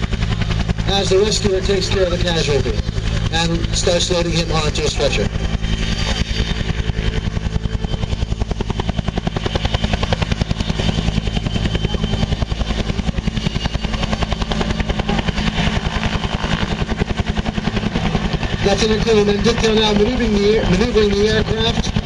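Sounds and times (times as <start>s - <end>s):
helicopter rotor chopping: 0.0s - 22.0s
turbine engines whine: 0.0s - 22.0s.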